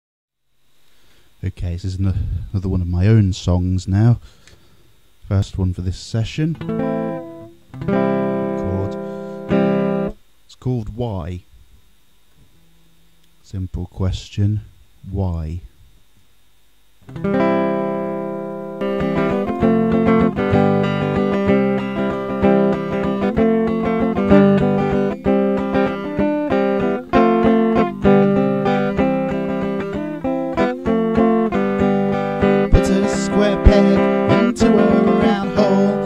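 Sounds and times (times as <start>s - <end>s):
acoustic guitar strumming: 6.5s - 10.2s, 17.0s - 36.0s.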